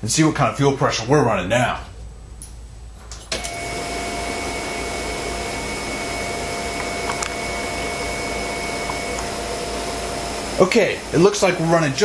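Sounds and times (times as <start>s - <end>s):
electric fuel pump humming: 3.3s - 12.0s.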